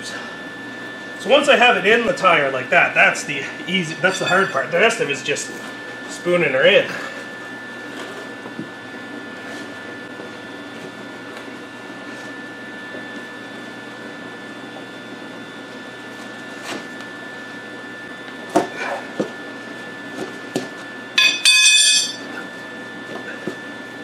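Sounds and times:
steady hum: 0:00.0 - 0:11.2, 0:21.1 - 0:22.6
tire iron clattering on concrete: 0:21.2 - 0:22.3.

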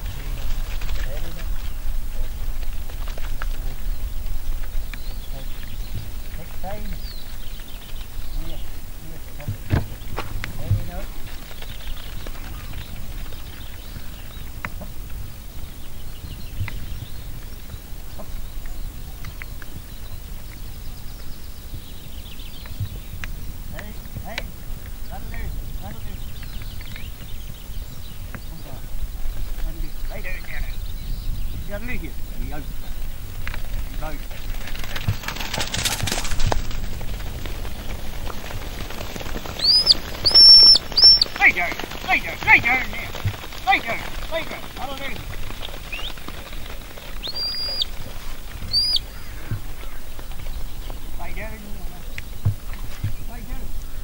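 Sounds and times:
wind buffeting microphone: 0:00.0 - 0:54.0
steady rushing noise: 0:21.8 - 0:54.0
faint high chirps: 0:39.6 - 0:41.4, 0:47.2 - 0:48.0, 0:48.6 - 0:50.6
shepherd whistling commands: 0:39.6 - 0:44.6, 0:47.2 - 0:47.9, 0:48.7 - 0:49.0.

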